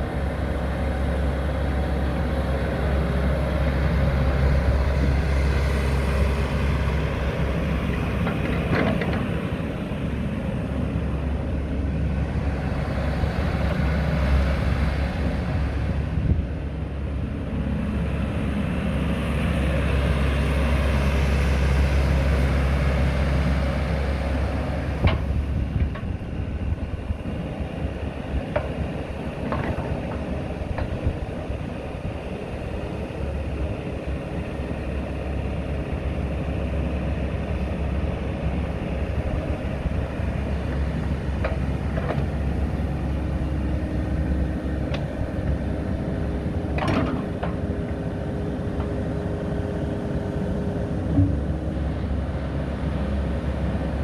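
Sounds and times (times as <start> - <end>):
excavator diesel engine running: 0.0 - 54.0
hydraulics working: 24.4 - 53.9.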